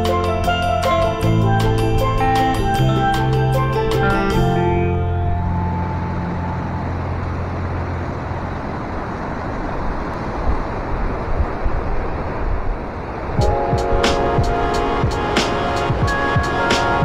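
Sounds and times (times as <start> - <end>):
music: 0.0 - 7.0, 13.4 - 17.0.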